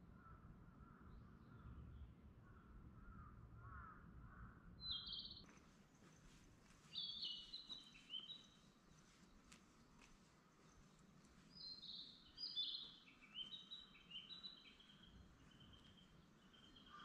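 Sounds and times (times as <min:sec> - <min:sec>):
crows cawing: 0:03.1 - 0:04.4.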